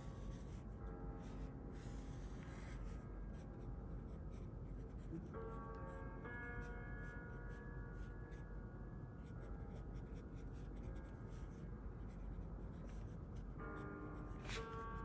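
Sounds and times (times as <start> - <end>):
marker scratching on paper: 0.1 - 0.6, 14.2 - 14.9.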